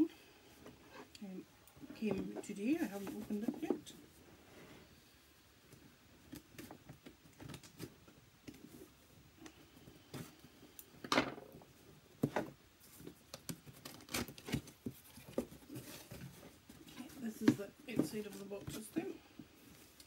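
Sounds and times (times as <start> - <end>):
cardboard rustling: 2.2 - 4.0, 12.2 - 20.0.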